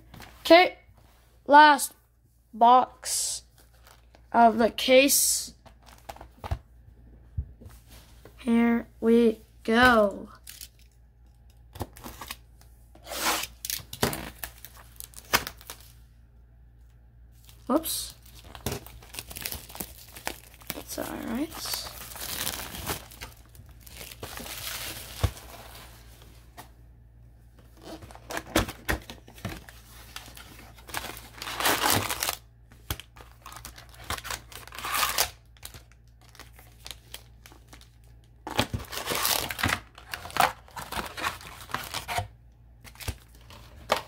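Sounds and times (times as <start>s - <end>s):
plastic wrapping crinkling: 13.1s - 16.0s, 17.4s - 26.2s, 27.8s - 42.2s.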